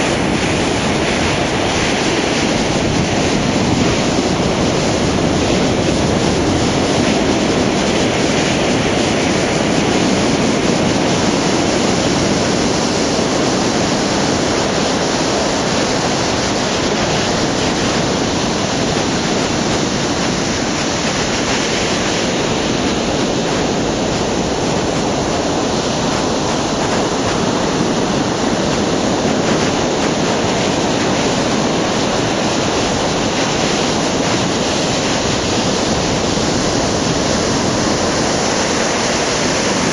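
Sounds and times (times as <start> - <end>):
surf breaking on shore: 0.0 - 39.9.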